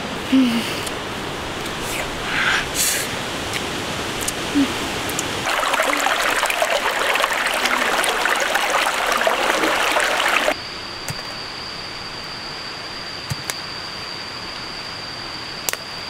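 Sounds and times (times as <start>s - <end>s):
stream rushing over stones: 5.4s - 10.6s
steady high-pitched tone: 5.5s - 15.6s.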